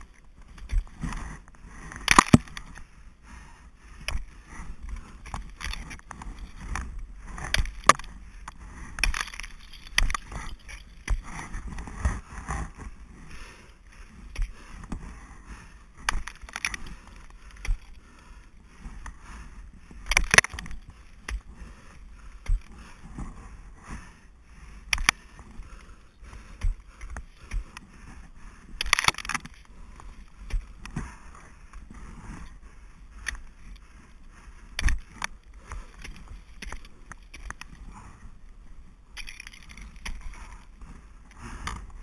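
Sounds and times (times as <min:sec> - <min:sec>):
rustling and scraping: 0:00.0 - 0:03.0, 0:03.9 - 0:42.0
ice axe striking ice: 0:01.9 - 0:02.7, 0:08.9 - 0:12.6, 0:20.1 - 0:21.5, 0:28.7 - 0:29.6.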